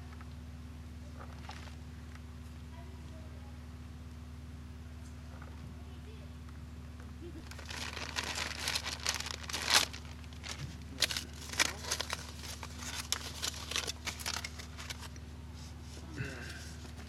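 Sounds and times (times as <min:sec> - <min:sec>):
aluminium foil crinkling: 0:07.4 - 0:15.2.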